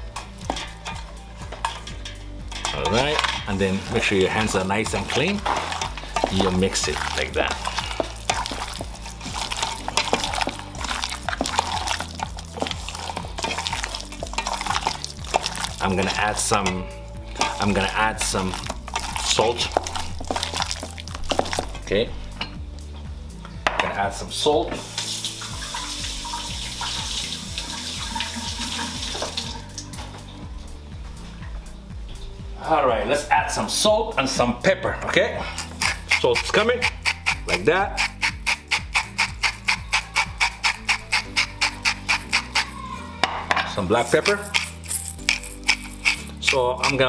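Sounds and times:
meat squishing in marinade: 0:03.7 - 0:16.6, 0:17.3 - 0:21.8, 0:35.5 - 0:42.7, 0:44.0 - 0:47.0.

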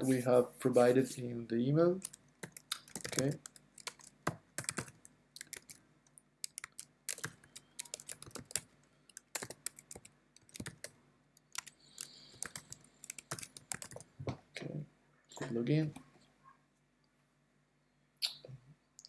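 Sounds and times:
computer keyboard typing: 0:02.0 - 0:05.8, 0:06.4 - 0:14.1.

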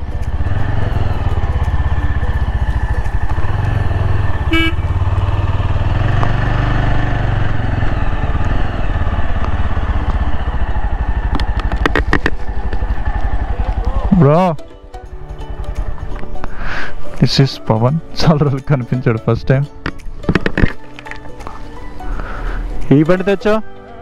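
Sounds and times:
motorcycle engine running: 0:00.0 - 0:17.1
short horn toot: 0:04.4 - 0:04.9.

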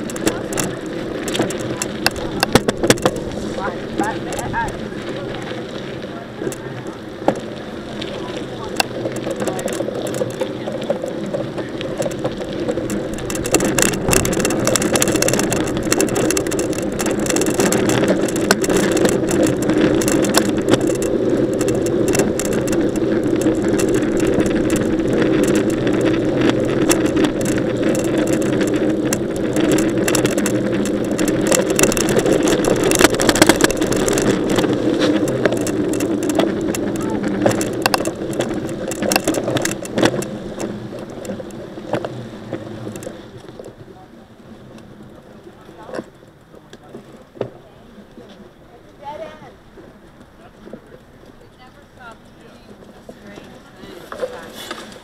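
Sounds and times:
bike rattling clicks: 0:00.0 - 0:43.8
wind noise: 0:00.0 - 0:43.9
bike tyres rolling: 0:00.0 - 0:55.0.

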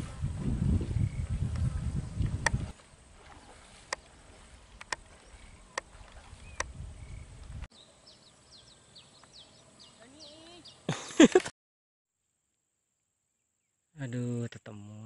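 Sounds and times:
high falling bird chirps: 0:04.1 - 0:10.9.

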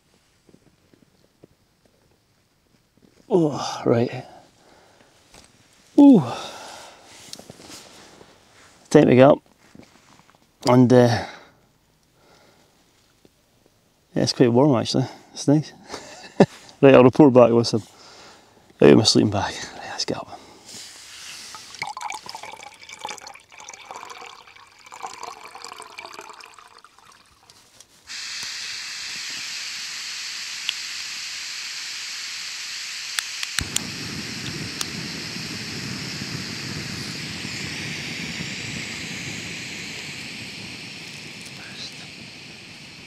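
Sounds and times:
gas stove hissing: 0:03.3 - 0:08.6, 0:28.1 - 0:43.0
water poured into a pot: 0:21.5 - 0:27.6
burner flame rushing: 0:28.1 - 0:43.0
igniter clicks: 0:33.1 - 0:35.0.

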